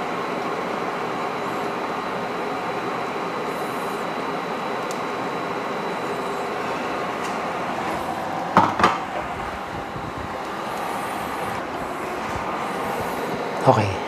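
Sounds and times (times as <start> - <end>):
sharp knocks: 8.6 - 9.0.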